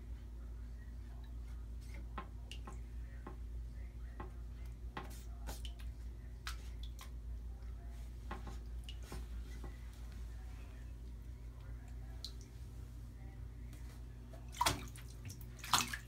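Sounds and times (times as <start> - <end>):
steady low hum: 0.0 - 16.0
kitten splashing water: 4.4 - 12.8, 14.3 - 16.0.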